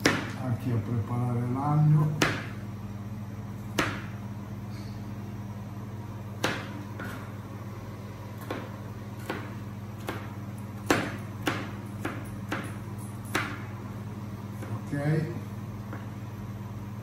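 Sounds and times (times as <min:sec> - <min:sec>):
knife chopping on cutting board: 0:00.0 - 0:00.4, 0:02.0 - 0:02.6, 0:03.7 - 0:04.2, 0:06.4 - 0:07.3, 0:08.4 - 0:13.8, 0:14.6 - 0:14.8.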